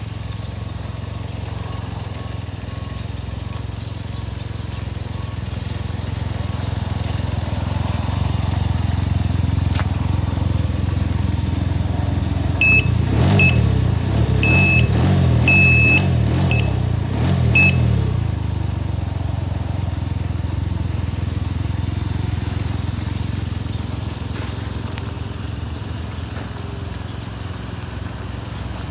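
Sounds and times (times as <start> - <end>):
engine running: 0.0 - 28.9
short high electronic beeps: 12.6 - 13.7, 14.4 - 16.8, 17.6 - 17.9.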